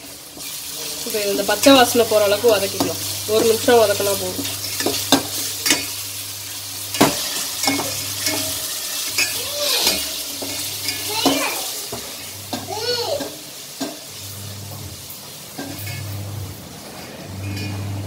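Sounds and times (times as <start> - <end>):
onion sizzling in a pot: 0.0 - 18.0
spoon clinking against pot: 4.7 - 6.0, 6.9 - 14.0.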